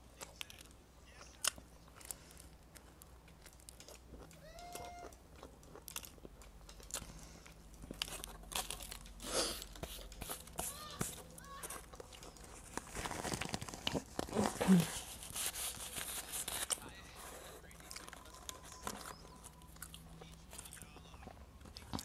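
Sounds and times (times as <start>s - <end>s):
crunching and chewing pastry: 0.0s - 22.0s
pastry tearing with crackles: 7.8s - 17.0s
paper wrapper rustling: 8.0s - 21.0s.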